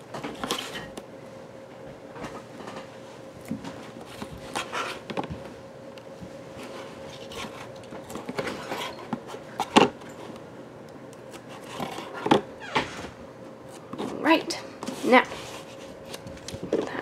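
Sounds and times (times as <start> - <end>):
faint steady hum: 0.0 - 17.0
cardboard rustling and sliding: 11.5 - 14.2.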